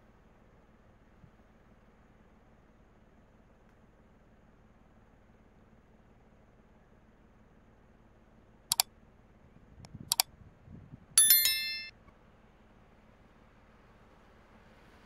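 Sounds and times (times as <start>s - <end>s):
notification bell chime: 11.2s - 11.9s.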